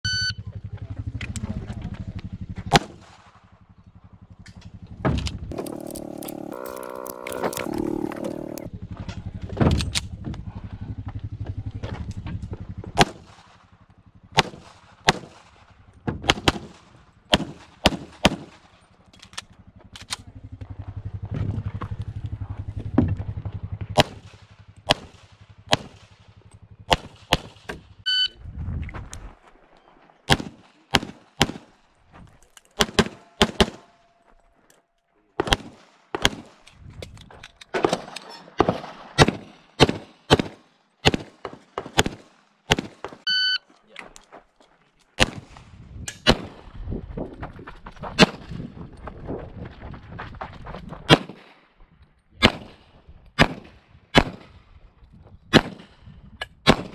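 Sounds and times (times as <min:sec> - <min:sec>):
electronic timer beep: 0:00.0 - 0:00.4, 0:28.1 - 0:28.4, 0:43.3 - 0:43.6
low rumble: 0:00.1 - 0:17.8, 0:18.8 - 0:29.8
rapid pistol shots: 0:13.0 - 0:13.7, 0:14.3 - 0:18.7, 0:24.0 - 0:26.3, 0:26.9 - 0:27.9, 0:30.3 - 0:31.8, 0:32.8 - 0:33.9, 0:35.4 - 0:36.6, 0:37.8 - 0:43.3, 0:45.2 - 0:45.6, 0:46.2 - 0:46.6, 0:51.1 - 0:51.6, 0:52.4 - 0:54.6, 0:55.5 - 0:56.0, 0:56.6 - 0:56.9.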